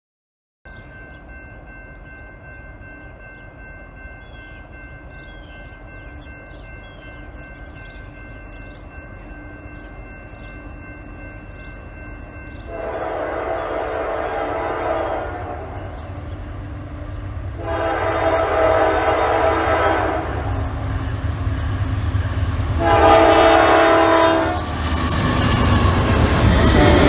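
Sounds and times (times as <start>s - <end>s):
train rumble: 0.7s - 27.0s
birds chirping: 3.0s - 17.4s
train horn: 12.6s - 16.2s, 17.5s - 21.0s, 22.7s - 27.0s.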